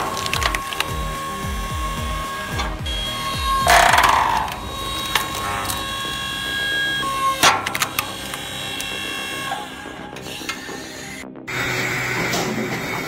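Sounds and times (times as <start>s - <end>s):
wood cracking loudly: 0.0s - 6.6s
wood snapping and creaking: 0.0s - 10.9s.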